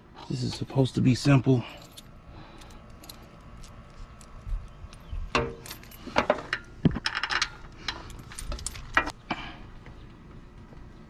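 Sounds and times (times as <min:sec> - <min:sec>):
metal chain clinking and jangling: 0:01.6 - 0:04.3, 0:05.4 - 0:06.2, 0:07.0 - 0:09.1.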